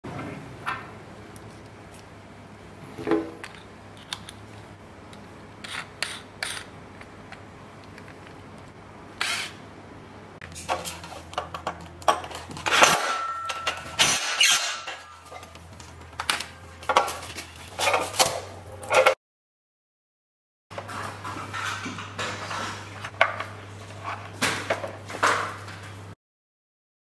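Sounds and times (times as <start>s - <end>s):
metallic clatter: 10.5s - 19.2s.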